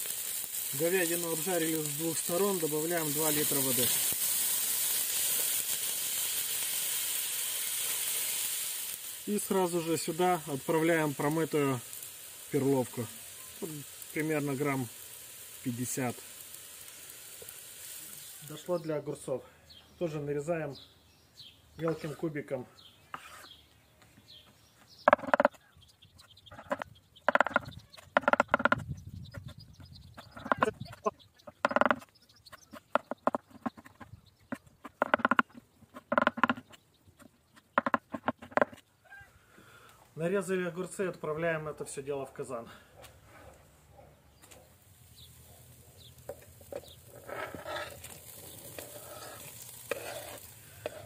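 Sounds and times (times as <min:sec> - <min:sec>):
metal skimmer scraping wooden board: 0:46.8 - 0:51.0.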